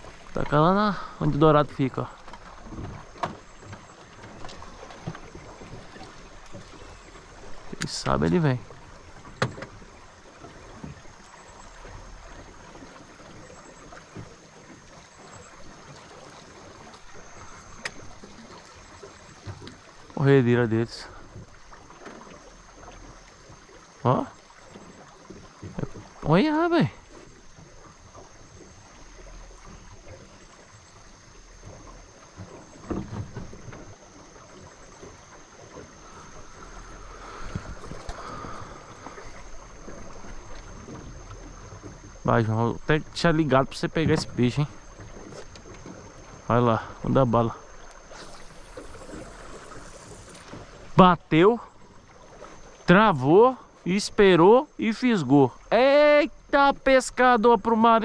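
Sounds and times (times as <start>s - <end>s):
river water rushing around boat: 0.0s - 58.0s
wind buffeting microphone: 36.4s - 39.4s.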